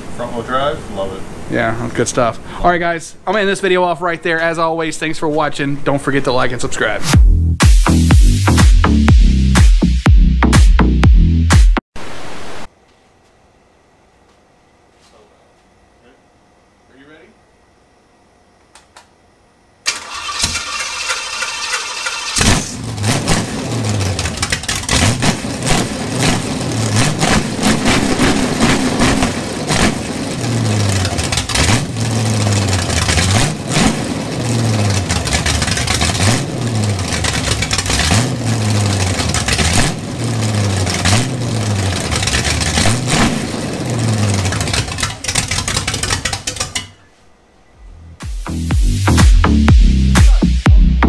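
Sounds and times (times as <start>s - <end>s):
starter motor cranking: 19.9s - 23.1s, 23.9s - 25.3s, 27.0s - 46.9s
engine running unevenly: 19.9s - 46.8s.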